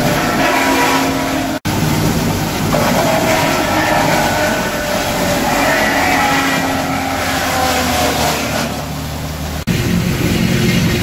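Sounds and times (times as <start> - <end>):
wood crusher grinding wood: 0.0 - 1.6, 2.7 - 9.0
diesel engine under load: 0.0 - 11.0
wavering whine: 0.0 - 11.0.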